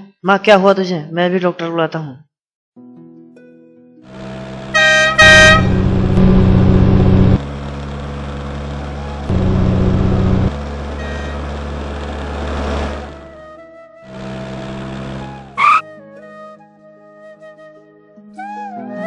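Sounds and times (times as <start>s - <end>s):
scooter engine running: 4.1s - 13.4s, 14.1s - 15.8s
scooter horn tooting: 4.7s - 7.1s, 10.9s - 11.6s.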